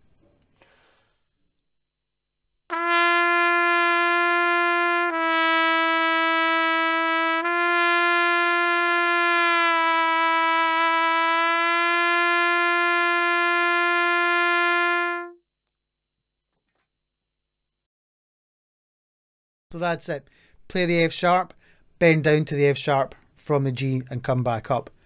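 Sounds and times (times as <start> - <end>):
trumpet bending a note: 2.7 - 15.4.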